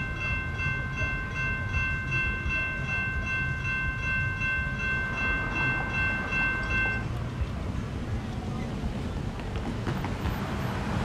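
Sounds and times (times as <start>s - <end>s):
railroad crossing bell ringing: 0.0s - 7.2s
low rumble of rail traffic: 0.0s - 11.0s.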